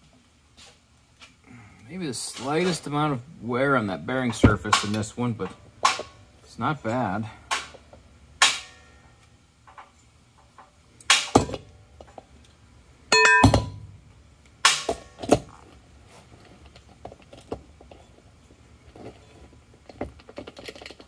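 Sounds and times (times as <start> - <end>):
steel parts clanking: 13.1 - 13.9.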